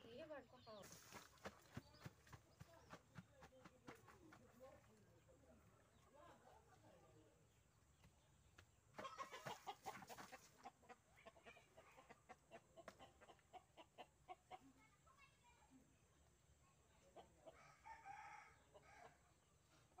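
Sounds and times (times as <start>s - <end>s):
chickens clucking: 0.6s - 4.6s, 8.0s - 14.8s, 17.0s - 17.7s.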